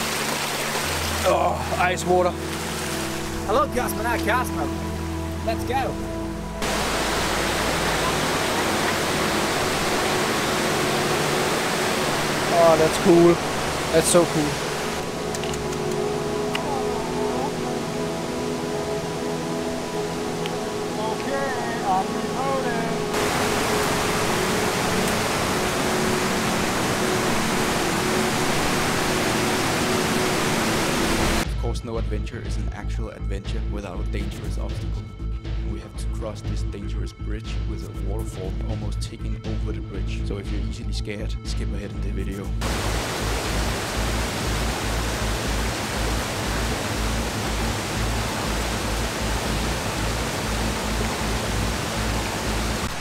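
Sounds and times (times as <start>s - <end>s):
river rushing over rocks: 0.0s - 1.4s, 6.6s - 31.4s, 42.6s - 53.0s.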